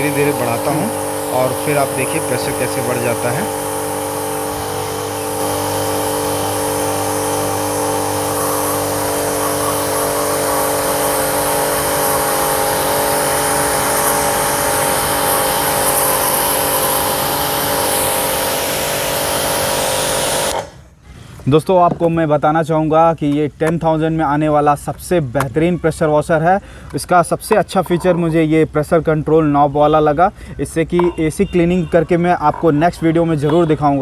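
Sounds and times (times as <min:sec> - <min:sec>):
water jet hissing: 0:00.0 - 0:20.8
pressure washer motor hum: 0:00.0 - 0:21.0.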